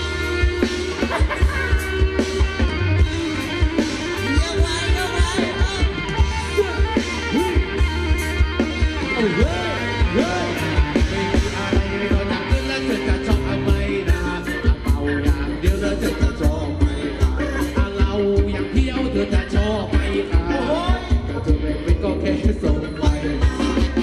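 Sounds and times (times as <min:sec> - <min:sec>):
electric guitar: 0:00.0 - 0:24.0
steady drum beat: 0:00.0 - 0:24.0.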